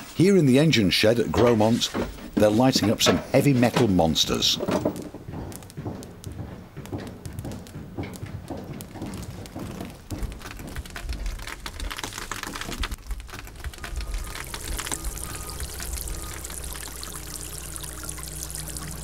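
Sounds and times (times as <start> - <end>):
wood fire crackling: 0.0 - 19.0
steady low hum: 12.9 - 19.0
water trickling and dripping: 13.0 - 19.0.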